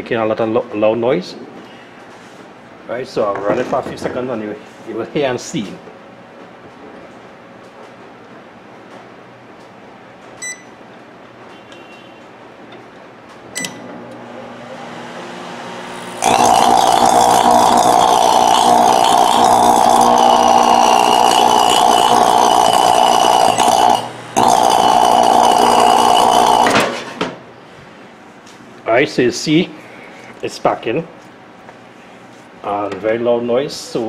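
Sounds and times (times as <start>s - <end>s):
microwave oven humming: 9.9s - 12.1s, 12.8s - 27.7s
harsh electrical arcing buzz: 15.8s - 27.2s.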